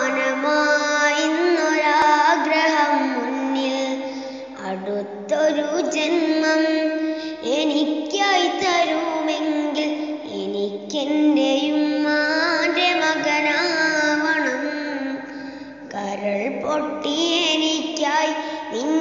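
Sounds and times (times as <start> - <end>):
high voice singing: 0.0 - 19.0.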